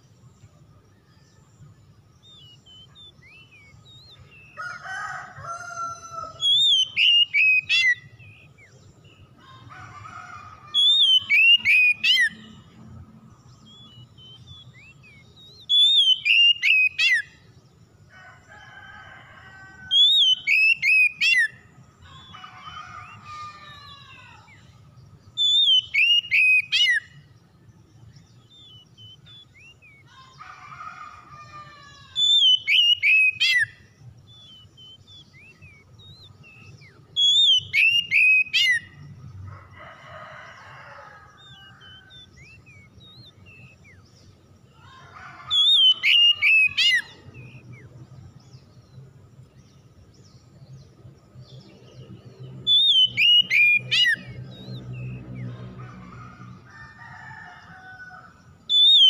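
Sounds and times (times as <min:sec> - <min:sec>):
bird singing whistled phrases: 0:06.4 - 0:08.6, 0:10.8 - 0:12.4, 0:13.7 - 0:17.3, 0:25.4 - 0:27.2, 0:32.1 - 0:33.7, 0:34.4 - 0:38.8, 0:45.5 - 0:47.6, 0:52.7 - 0:54.3.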